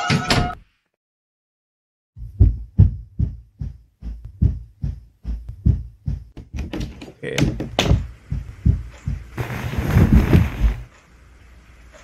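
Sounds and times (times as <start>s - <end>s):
heartbeat thumps: 2.2s - 6.6s, 7.4s - 10.9s.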